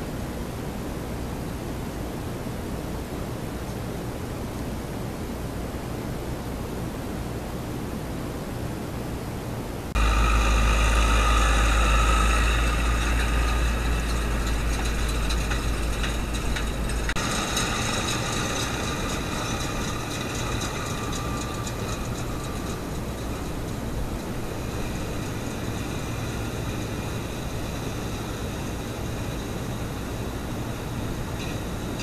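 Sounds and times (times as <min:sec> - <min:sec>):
tractor engine rumble: 0:09.9 - 0:32.0.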